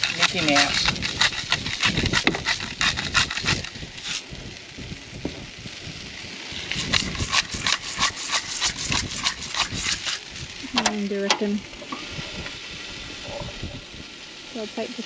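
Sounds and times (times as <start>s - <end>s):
spice grinder crunching: 0.0s - 4.4s, 6.6s - 10.7s.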